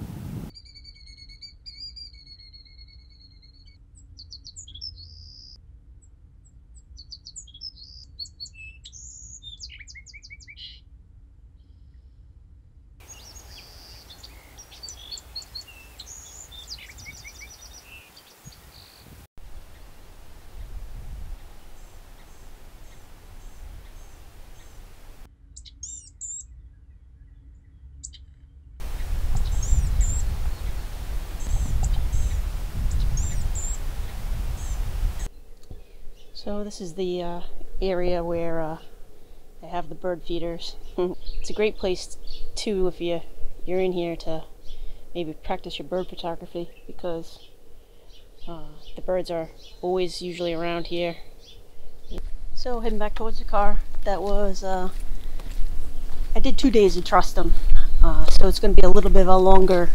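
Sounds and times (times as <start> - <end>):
songbirds singing trills: 0.5 - 5.6, 7.0 - 10.8, 13.0 - 59.9
long high bird call: 13.0 - 26.0, 28.8 - 36.4
loud low rumble: 28.8 - 46.1.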